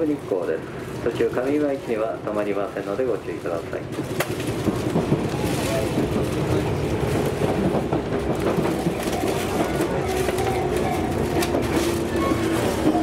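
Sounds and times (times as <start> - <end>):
wheels on rails: 2.8 - 13.0
electric train running: 4.3 - 13.0.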